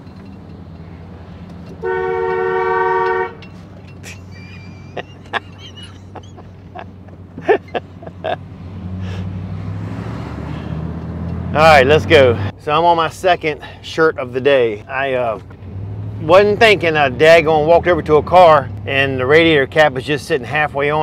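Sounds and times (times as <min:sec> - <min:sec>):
engine humming from inside cab: 0:00.0 - 0:21.0
car horn blast: 0:01.8 - 0:03.5.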